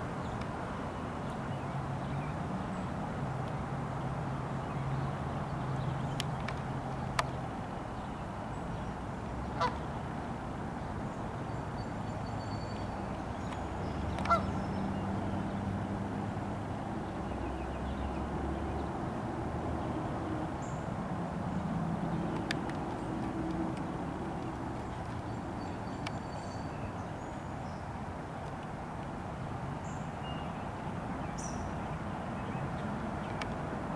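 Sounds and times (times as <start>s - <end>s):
goose honking: 9.6s - 9.8s, 14.3s - 14.5s.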